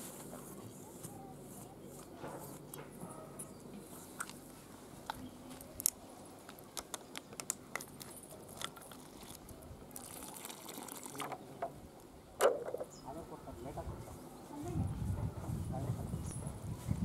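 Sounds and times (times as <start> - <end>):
light clicks and crunches: 3.7 - 9.5
water trickling into flour: 8.3 - 11.5.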